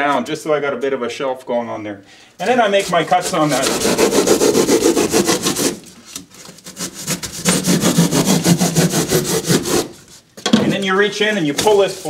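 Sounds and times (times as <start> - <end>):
hand saw cutting foam: 2.4 - 10.2.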